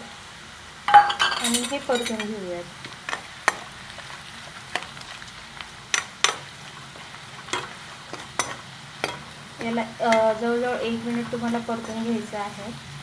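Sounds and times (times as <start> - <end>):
spices frying in hot oil: 0.0 - 13.0
spatula knocking against pan: 7.6 - 10.3.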